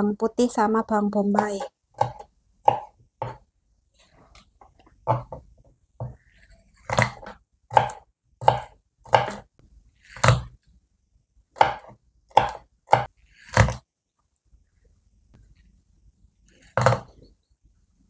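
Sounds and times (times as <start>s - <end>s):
knife chopping on wooden board: 1.4s - 3.4s, 5.0s - 9.5s, 10.1s - 10.6s, 11.6s - 13.8s, 16.7s - 17.2s.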